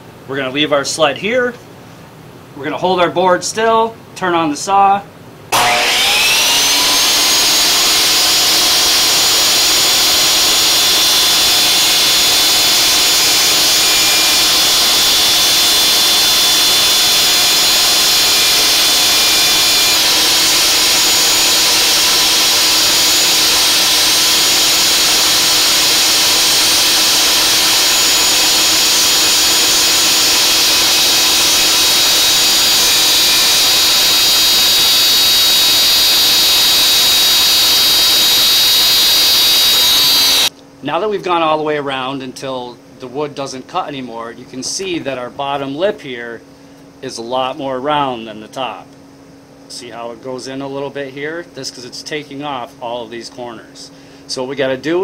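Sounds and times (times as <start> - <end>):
saw blade shaving wood: 5.5 - 40.5
table saw whining: 5.5 - 40.5.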